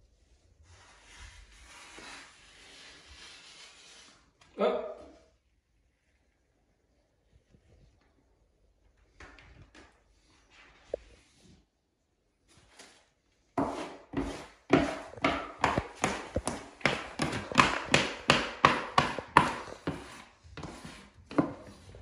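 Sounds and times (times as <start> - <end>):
wallpaper smoother scraping: 0.0 - 4.5, 12.4 - 22.0.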